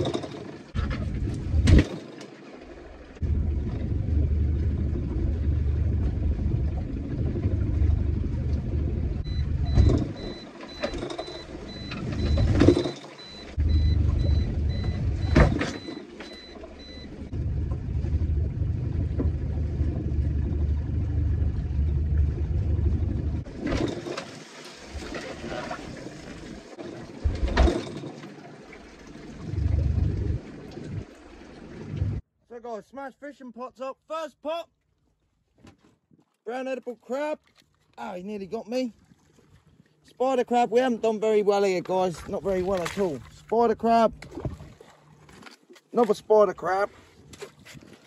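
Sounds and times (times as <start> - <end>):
boat engine and wind rumble: 0.0 - 1.9, 2.7 - 24.1, 29.2 - 32.2, 38.1 - 45.4.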